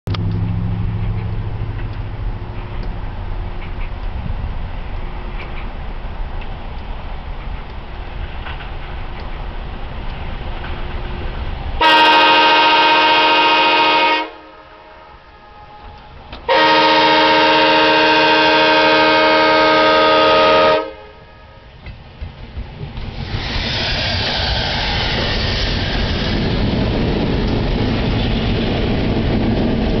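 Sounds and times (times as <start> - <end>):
locomotive engine and wheel noise: 0.1 - 30.0
locomotive air horn blasts: 11.8 - 21.8.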